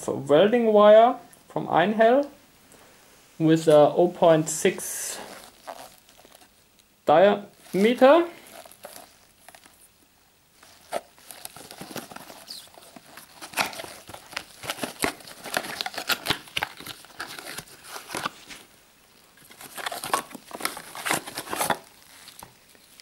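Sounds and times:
cardboard crinkling and crackling: 4.6s - 6.6s, 7.5s - 9.9s, 10.5s - 18.7s, 19.3s - 23.0s.

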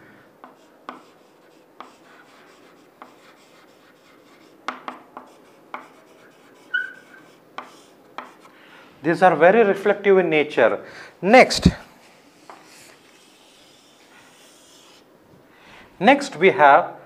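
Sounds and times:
chalk scratching on blackboard: 0.4s - 8.5s, 12.4s - 15.1s
chalk tapping on blackboard: 0.4s - 8.5s, 12.4s - 15.0s
chalk squeak: 5.8s - 7.9s.

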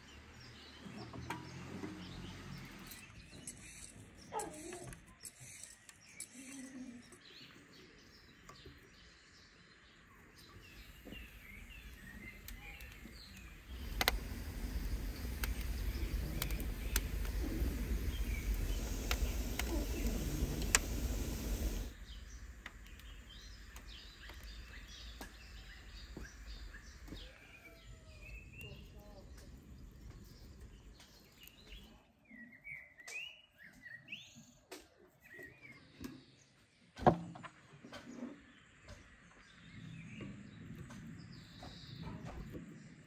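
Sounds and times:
birds chirping: 0.0s - 34.6s
wood fire crackling in an oven: 10.1s - 31.9s.

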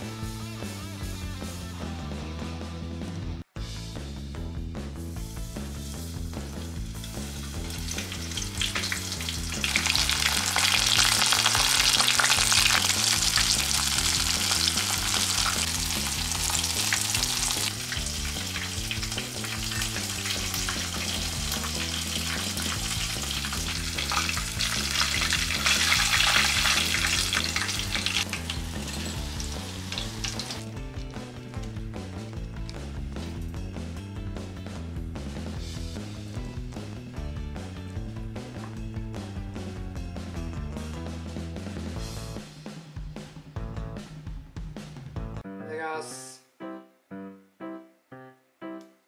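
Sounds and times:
chicken deep-frying in oil: 5.5s - 31.1s.

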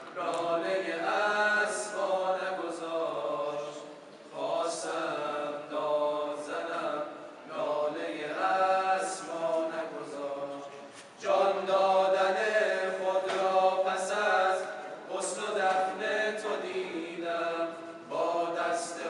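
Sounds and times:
men chanting a cappella: 0.1s - 19.0s.

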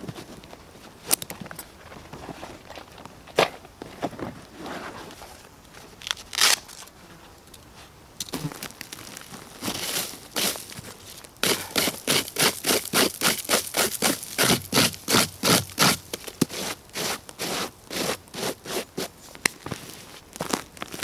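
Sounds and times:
hand brushing ground: 7.7s - 21.0s
stick scraping forest litter: 7.8s - 21.0s.

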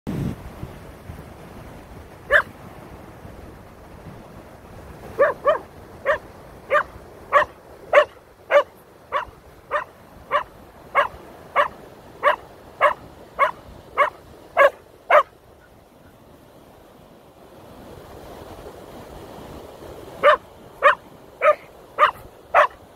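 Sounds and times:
dog barking: 2.3s - 2.5s, 5.1s - 15.3s, 20.2s - 22.8s.

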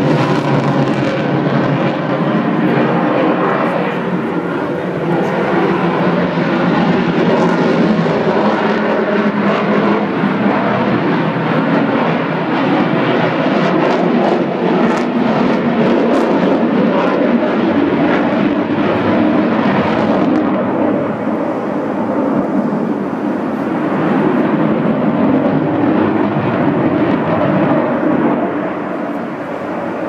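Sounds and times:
fighter jet engine roar: 0.0s - 30.0s.

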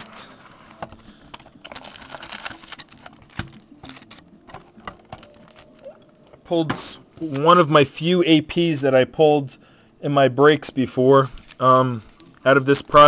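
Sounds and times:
foil packs crinkling: 0.0s - 5.8s, 11.2s - 13.0s.

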